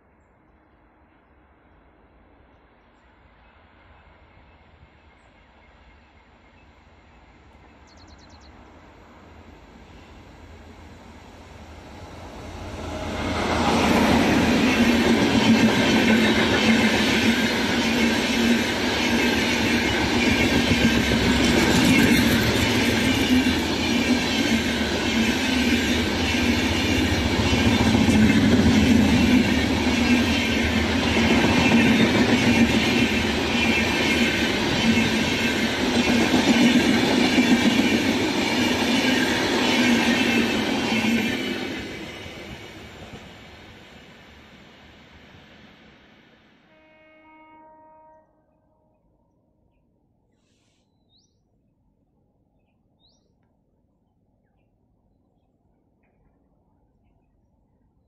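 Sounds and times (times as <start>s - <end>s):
train wheels rumbling on rails: 9.1s - 46.6s.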